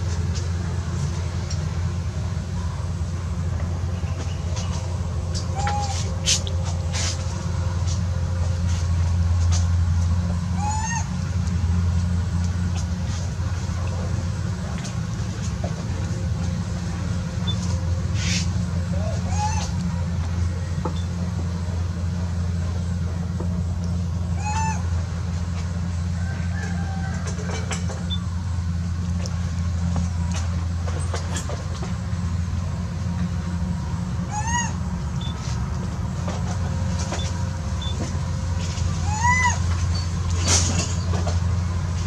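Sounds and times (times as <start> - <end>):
low motor rumble: 0.0 - 42.0
steady low hum: 0.0 - 42.0
monkey squealing: 10.6 - 11.1, 19.0 - 19.8, 24.4 - 24.9, 34.3 - 34.8, 39.0 - 40.1.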